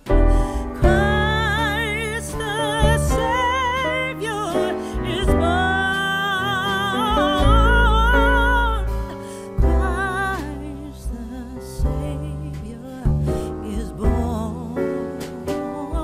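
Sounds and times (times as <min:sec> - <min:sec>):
deep bass line: 0:00.0 - 0:16.0
slow melody with vibrato: 0:00.0 - 0:16.0.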